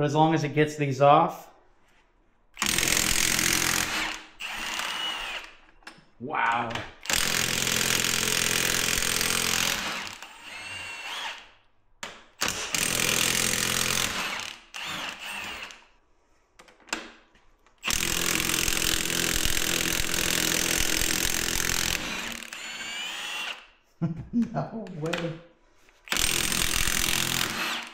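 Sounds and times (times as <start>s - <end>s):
impact wrench whine: 2.6s - 5.6s, 17.9s - 23.7s, 26.1s - 27.9s.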